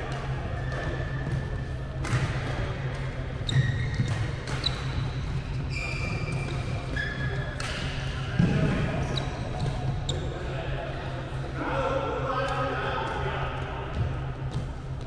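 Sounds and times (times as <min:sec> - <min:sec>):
rackets hitting shuttlecocks: 0:00.2 - 0:03.4, 0:04.0 - 0:05.1, 0:07.5 - 0:08.9
sports shoes squeaking: 0:03.4 - 0:07.8, 0:09.0 - 0:10.4.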